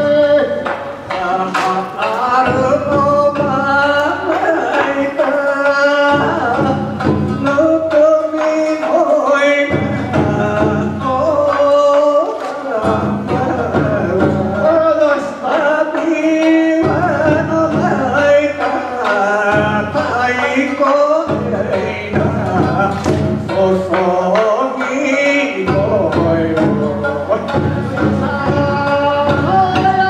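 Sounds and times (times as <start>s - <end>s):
men singing folk song: 0.0s - 30.0s
plucked shamisen: 0.0s - 30.0s
taiko drum strokes: 0.0s - 30.0s.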